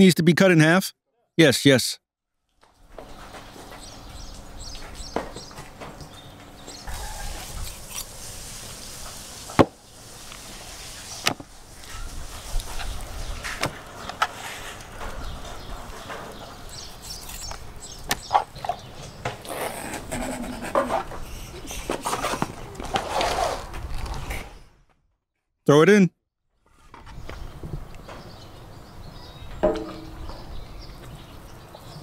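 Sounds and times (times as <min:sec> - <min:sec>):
sharp knocks: 0:29.6 - 0:30.5.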